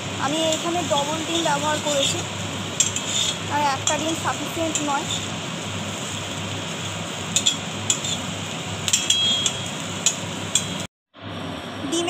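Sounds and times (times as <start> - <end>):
frying sizzle: 0.0 - 12.0
metal spatula scraping a wok: 1.3 - 5.4, 7.3 - 10.8.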